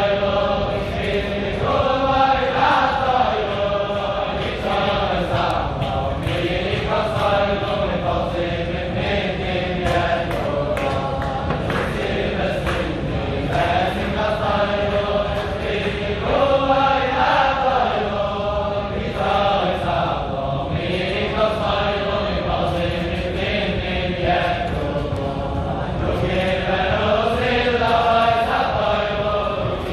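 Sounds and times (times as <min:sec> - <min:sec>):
group of men singing: 0:00.0 - 0:29.9.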